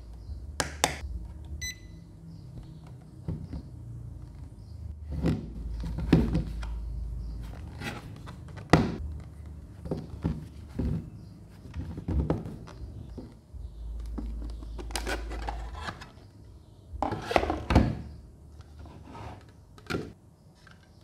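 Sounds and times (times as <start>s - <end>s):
handling box and plastic parts: 2.7s - 16.4s.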